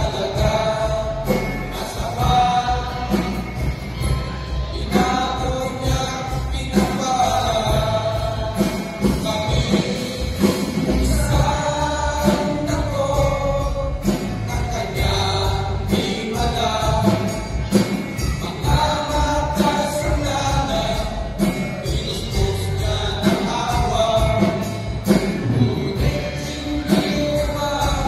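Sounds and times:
men's choir singing a hymn: 0.0 - 3.7, 4.7 - 17.5, 25.4 - 28.0.

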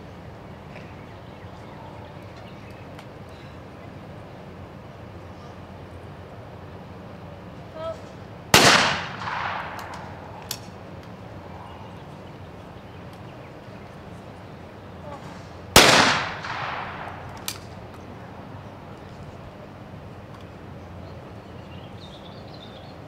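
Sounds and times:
shotgun shot: 8.6 - 10.2, 15.8 - 17.4.

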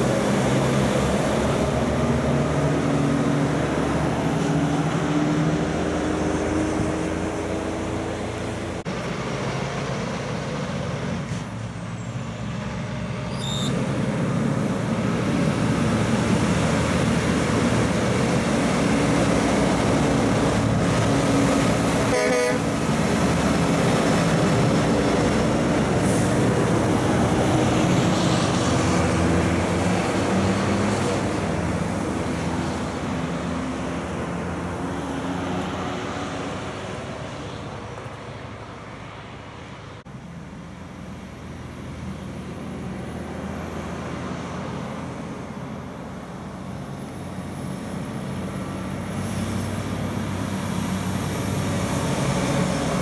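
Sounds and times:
heavy truck passing by: 0.0 - 53.0
truck horn toot: 22.0 - 22.8.

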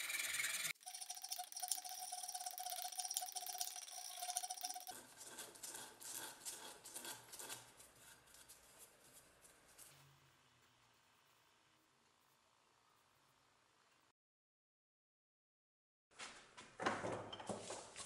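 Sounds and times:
file rasping on wooden handle: 4.9 - 9.2.

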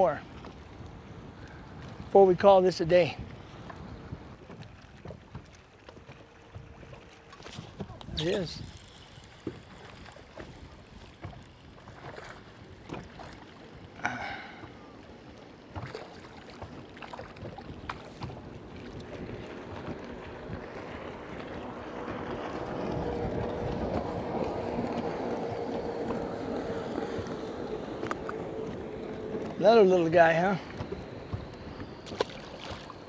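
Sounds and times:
water noise: 0.0 - 33.0
wind: 0.0 - 33.0
fishing reel clicks: 8.0 - 14.1.

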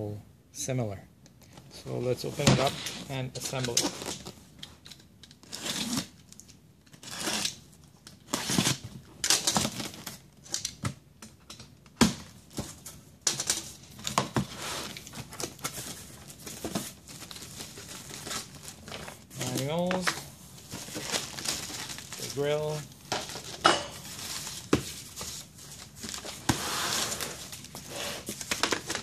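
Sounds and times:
cardboard tearing and scraping: 5.4 - 6.2, 7.0 - 7.6, 8.3 - 10.2, 20.6 - 23.5, 24.1 - 29.0
plastic wrapping crinkling: 14.8 - 29.0.

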